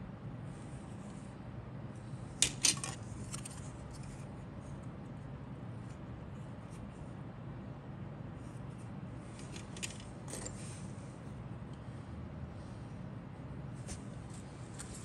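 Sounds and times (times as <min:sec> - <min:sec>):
steady low hum: 0:00.0 - 0:15.0
plastic parts clicking: 0:02.4 - 0:03.6, 0:09.4 - 0:10.6.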